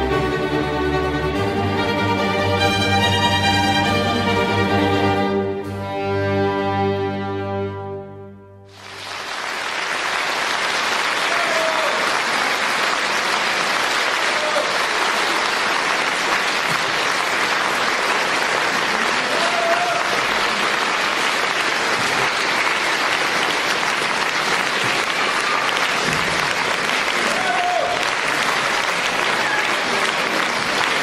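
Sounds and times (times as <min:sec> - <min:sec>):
orchestra music: 0:00.0 - 0:10.3
audience applauding: 0:08.7 - 0:31.0.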